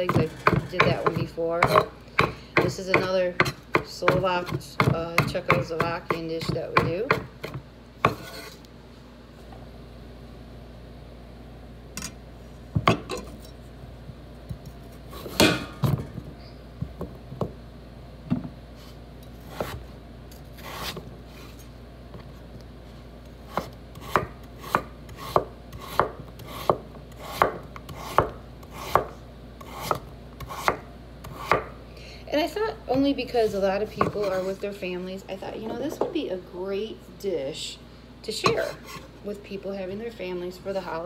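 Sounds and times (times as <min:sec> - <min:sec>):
knife chopping on wooden board: 0:00.0 - 0:08.5, 0:15.2 - 0:16.0, 0:23.5 - 0:31.7.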